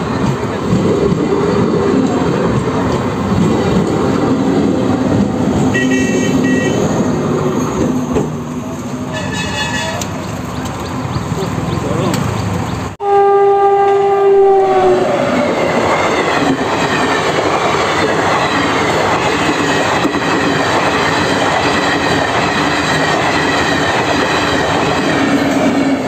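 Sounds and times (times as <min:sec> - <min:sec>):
train coaches rumbling past: 0:00.0 - 0:26.0
locomotive horn: 0:05.7 - 0:07.1, 0:09.0 - 0:10.1, 0:13.0 - 0:15.1.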